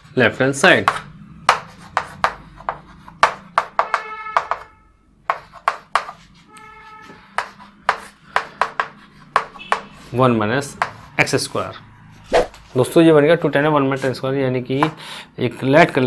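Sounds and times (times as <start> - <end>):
chalk tapping and scratching: 0.7 - 11.6.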